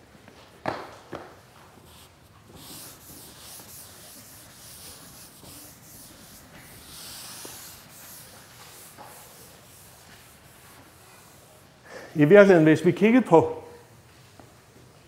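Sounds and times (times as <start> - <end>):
eraser wiping chalkboard: 1.8 - 11.8.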